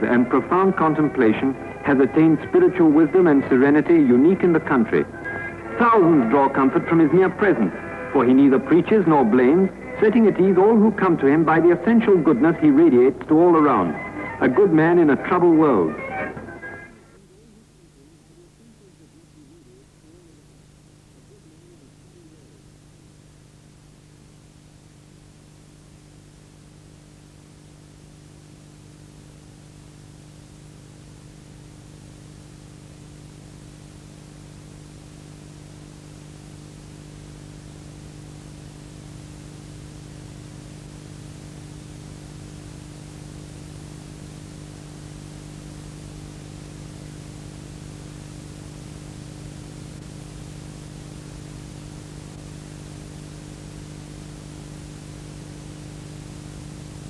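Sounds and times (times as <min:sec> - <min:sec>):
low electrical hum: 0:00.0 - 0:57.0.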